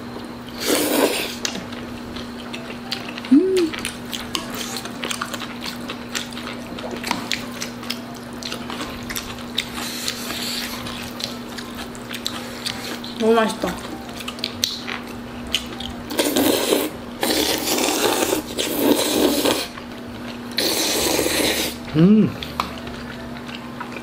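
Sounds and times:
chewing: 0:00.5 - 0:24.0
person humming: 0:03.2 - 0:03.8, 0:21.9 - 0:22.7.

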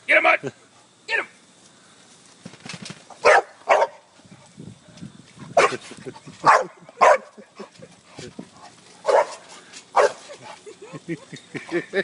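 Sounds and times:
dog barking: 0:03.2 - 0:04.0, 0:05.6 - 0:05.8, 0:06.4 - 0:07.4, 0:09.0 - 0:09.4, 0:10.0 - 0:10.2.

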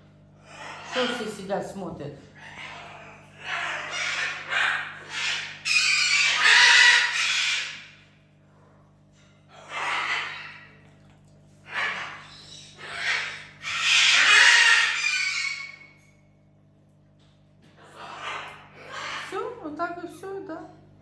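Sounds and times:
high-pitched animal calls: 0:00.4 - 0:01.4, 0:02.4 - 0:08.0, 0:09.5 - 0:10.9, 0:11.6 - 0:16.2, 0:17.8 - 0:19.6.

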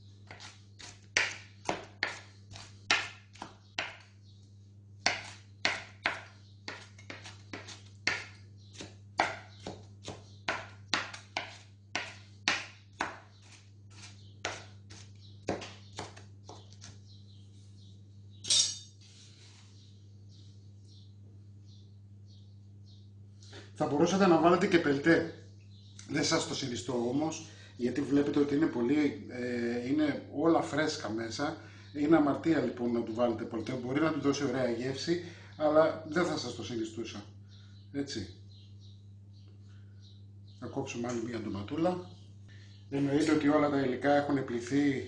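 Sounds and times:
steady low hum: 0:00.0 - 0:45.0
knife scraping board: 0:00.3 - 0:01.3, 0:13.0 - 0:15.2
knife chopping on wooden board: 0:00.3 - 0:04.1, 0:05.0 - 0:16.9.

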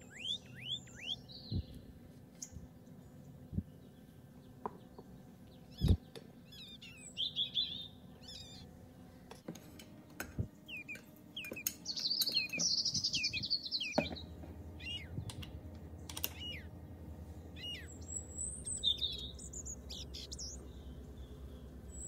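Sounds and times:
small birds chirping and twittering: 0:00.0 - 0:22.0
light clicks: 0:15.2 - 0:16.6.

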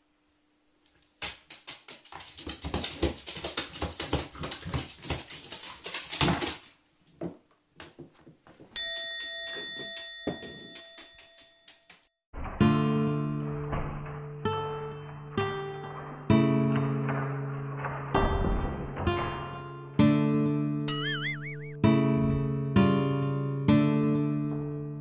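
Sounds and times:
bell-like chime: 0:08.8 - 0:11.8.

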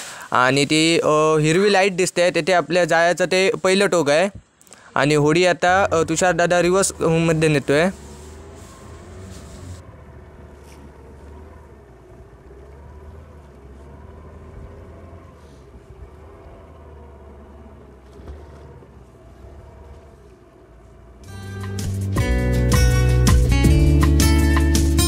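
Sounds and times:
boat engine running: 0:05.1 - 0:22.1.

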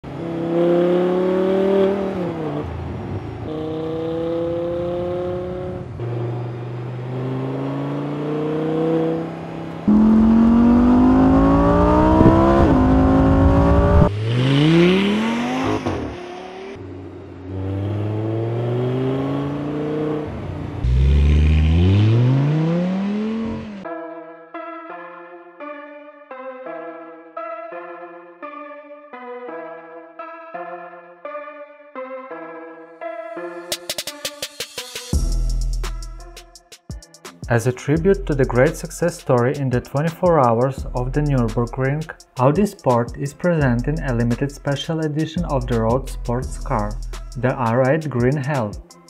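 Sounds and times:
sports car engine accelerating: 0:00.0 - 0:23.8
music: 0:23.8 - 0:49.0.

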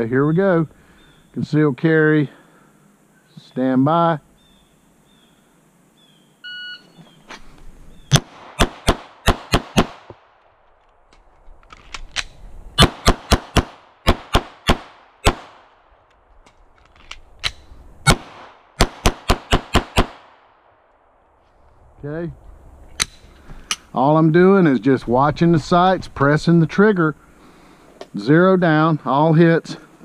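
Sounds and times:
pistol firing rapid shots: 0:08.1 - 0:10.1, 0:12.8 - 0:15.7, 0:18.1 - 0:20.4.

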